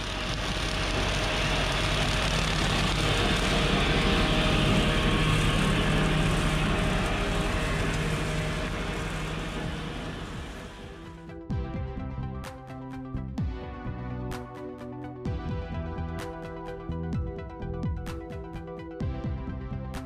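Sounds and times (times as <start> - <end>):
tractor diesel engine driving past: 0.0 - 11.3.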